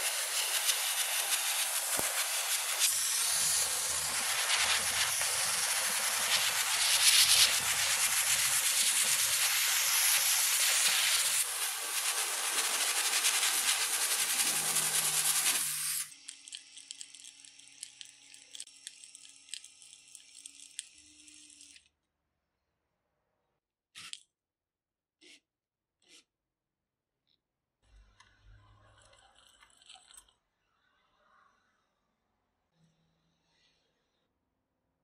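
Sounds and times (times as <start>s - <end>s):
sandblasting gun hissing: 0.0s - 16.1s.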